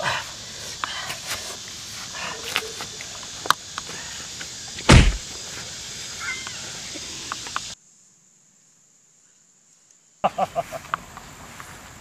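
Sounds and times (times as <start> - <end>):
outdoor background hiss: 0.0 - 12.0
heavy dull thump: 4.8 - 5.3.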